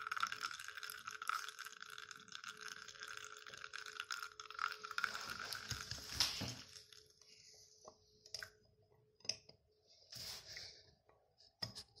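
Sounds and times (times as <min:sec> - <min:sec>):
espresso trickling and sputtering: 0:00.0 - 0:07.2.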